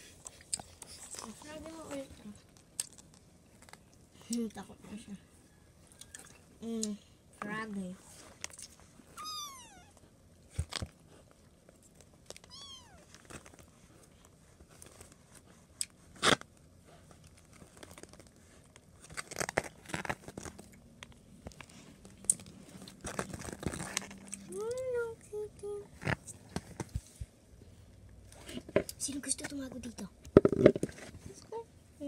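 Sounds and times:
kitten meowing: 0:09.2 - 0:10.0, 0:12.4 - 0:13.1
toys knocking on wooden floor: 0:30.4 - 0:30.9.

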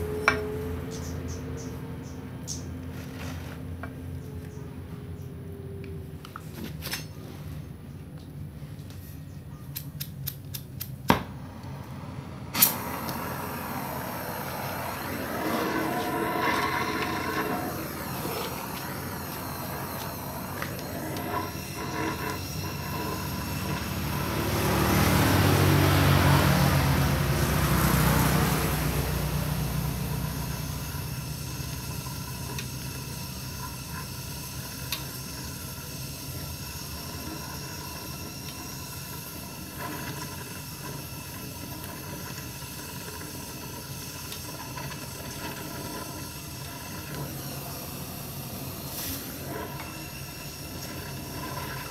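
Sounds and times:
welding torch flame hissing: 0:12.4 - 0:51.9.

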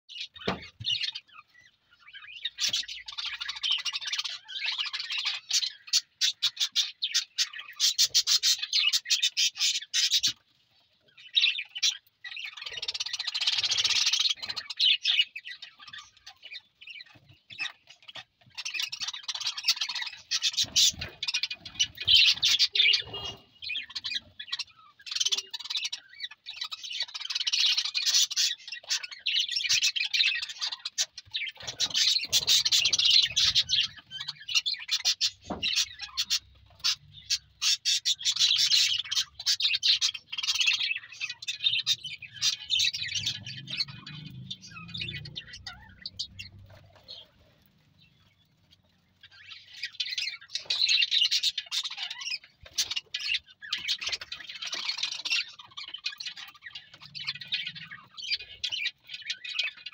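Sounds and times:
budgerigars chirping and chattering: 0:00.1 - 0:59.9.

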